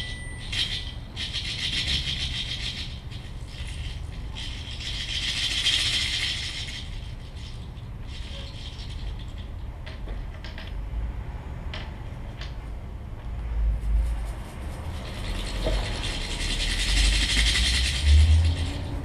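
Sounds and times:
steady low hum: 0:00.0 - 0:19.0
dry plant material rattling: 0:13.8 - 0:19.0.

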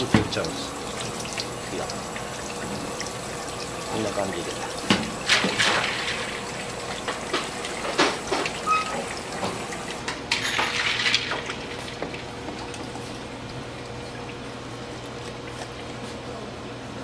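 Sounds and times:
water pouring and splashing: 0:00.0 - 0:16.2
utensils and dishes clinking: 0:07.0 - 0:11.6.

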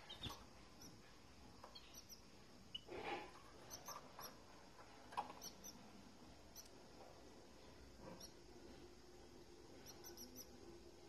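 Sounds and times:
canaries cheeping: 0:00.0 - 0:01.0, 0:01.6 - 0:02.9, 0:03.6 - 0:04.4, 0:05.3 - 0:05.9, 0:08.1 - 0:08.4, 0:09.8 - 0:10.6.

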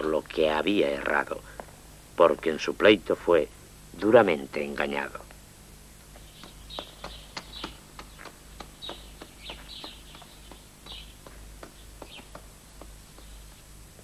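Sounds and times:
small birds chirping: 0:05.9 - 0:13.8.

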